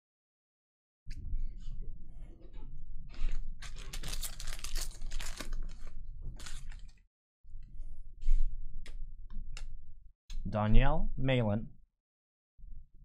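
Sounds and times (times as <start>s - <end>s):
foil wrapper tearing and crinkling: 3.6s - 6.9s.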